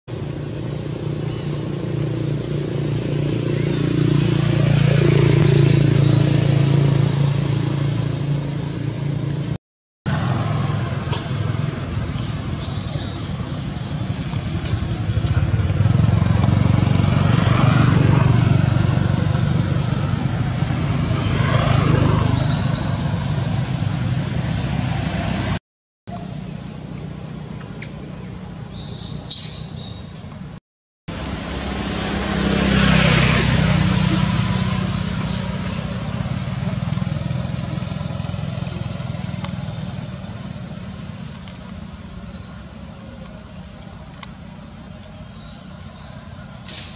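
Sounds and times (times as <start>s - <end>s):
low rumble of traffic: 0.1s - 46.9s
bird chirps: 5.2s - 6.7s, 26.1s - 30.6s.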